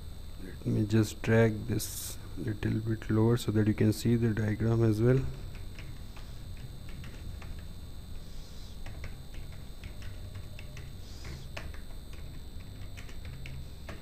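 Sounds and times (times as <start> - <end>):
low background hum: 0.0 - 14.0
keyboard keys clicking: 5.1 - 7.7, 8.8 - 14.0.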